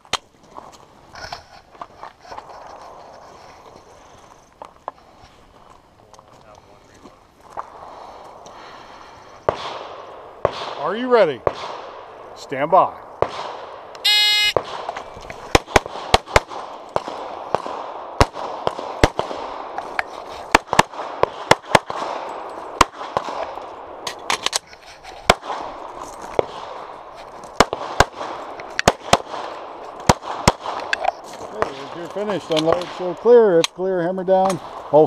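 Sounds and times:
pistol shots: 0:09.5 - 0:10.8, 0:11.4 - 0:12.1, 0:13.2 - 0:19.8, 0:20.5 - 0:24.2, 0:27.6 - 0:31.0
shot timer beep: 0:14.0 - 0:14.6.

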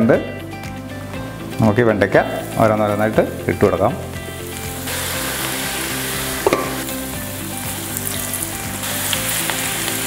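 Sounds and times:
deep-frying in hot oil: 0:02.4 - 0:10.0.

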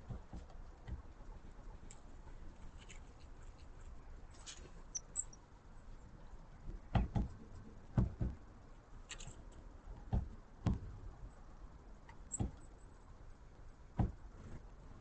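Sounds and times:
woodpecker knocking on wood: 0:06.9 - 0:08.4.

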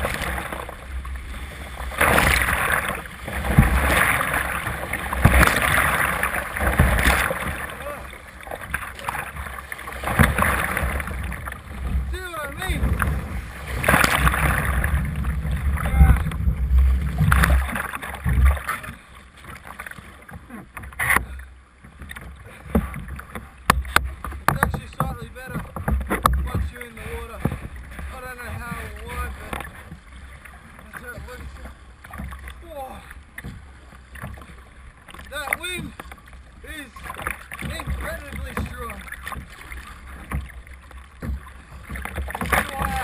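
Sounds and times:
loud splash: 0:00.0 - 0:11.8, 0:12.6 - 0:18.9
wind rumbling on microphone: 0:00.0 - 0:18.8
choppy water splashing: 0:00.0 - 0:43.0
kayak paddle strokes: 0:00.0 - 0:43.0.

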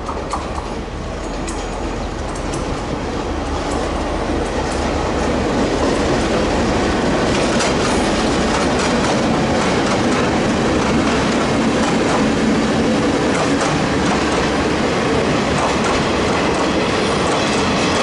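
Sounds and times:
wheels clicking over rail joints: 0:00.0 - 0:02.9, 0:07.3 - 0:12.4
diesel locomotive engine rumble: 0:00.0 - 0:18.0.

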